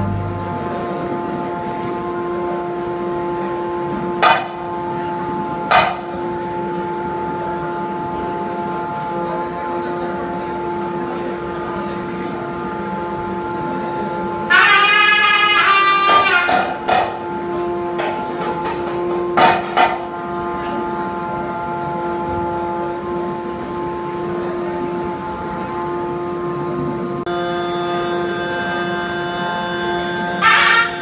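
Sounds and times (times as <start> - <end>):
droning ritual music: 0.0 - 31.0
high wavering call: 27.3 - 31.0.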